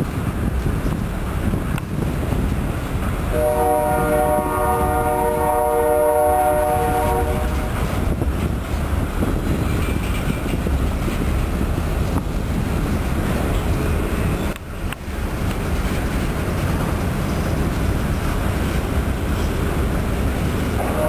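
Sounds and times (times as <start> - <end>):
freight train cars rolling: 0.0 - 21.0
locomotive air horn: 3.3 - 7.8, 20.8 - 21.0.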